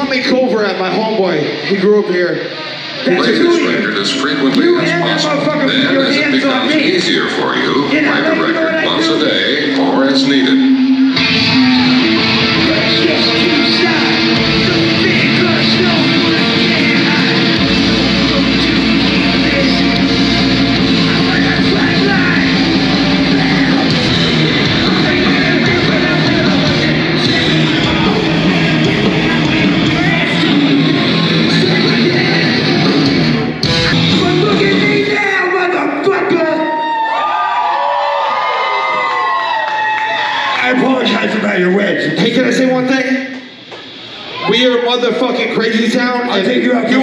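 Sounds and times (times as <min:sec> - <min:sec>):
metal band playing live: 0:07.7 - 0:35.7.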